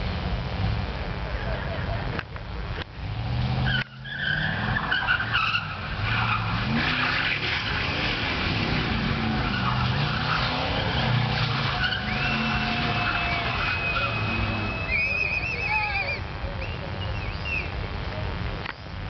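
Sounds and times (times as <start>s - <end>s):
car engine revving: 2.1s - 15.4s
tyres squealing: 3.6s - 17.8s.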